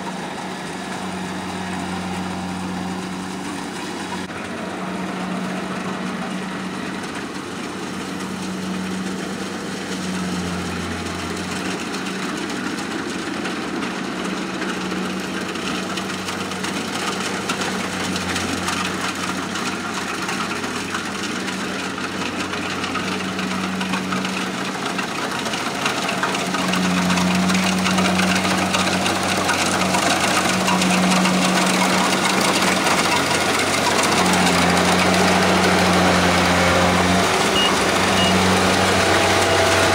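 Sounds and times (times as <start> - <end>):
diesel engine running: 0.0 - 39.9
harvester mechanical noise: 0.0 - 39.9.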